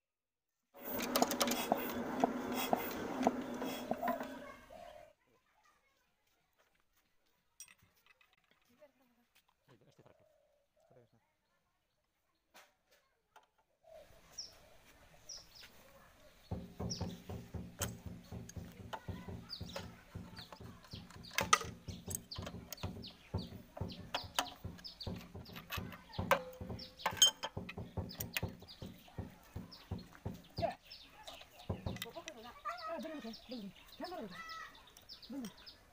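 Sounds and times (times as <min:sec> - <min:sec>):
small birds chirping: 0:13.8 - 0:35.9.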